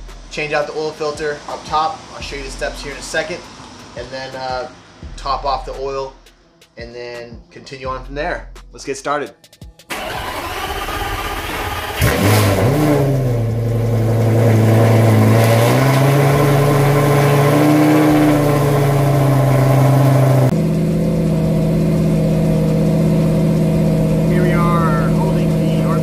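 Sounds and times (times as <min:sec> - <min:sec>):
car engine revving: 0:00.0 - 0:06.4, 0:09.9 - 0:26.0.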